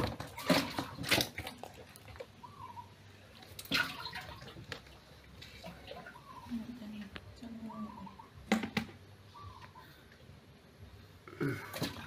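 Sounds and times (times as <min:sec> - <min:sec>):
fish moving on wet floor: 0:00.0 - 0:02.6.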